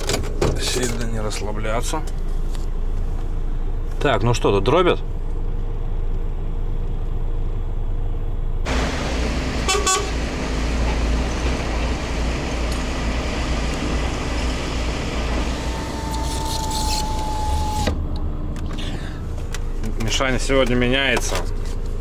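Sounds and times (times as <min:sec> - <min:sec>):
truck diesel engine running: 0:08.6 - 0:20.4
horn toot: 0:09.6 - 0:10.2.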